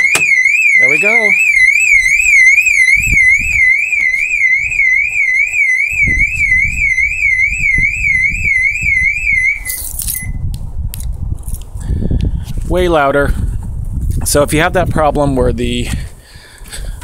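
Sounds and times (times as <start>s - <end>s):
car alarm siren warbling: 0.0s - 9.8s
short beep: 9.6s - 10.4s.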